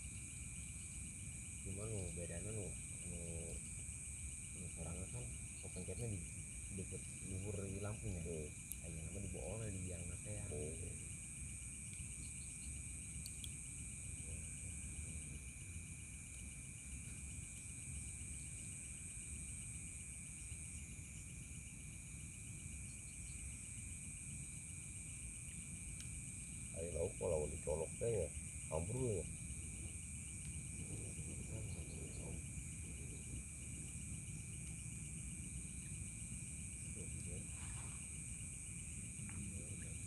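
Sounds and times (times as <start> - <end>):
insects pulsed chirping: 0.0 - 40.0
insects trilling: 0.0 - 40.0
faint voices: 30.8 - 32.4.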